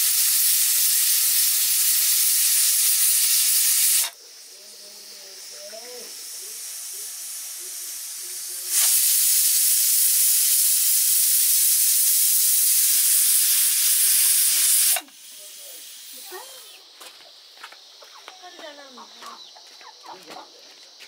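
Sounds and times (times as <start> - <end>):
pressure cooker steam hiss: 0.0 - 16.8.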